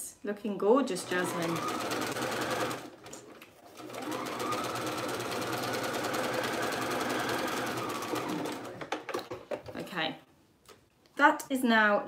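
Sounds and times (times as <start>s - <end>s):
sewing machine stitching: 0.9s - 9.3s.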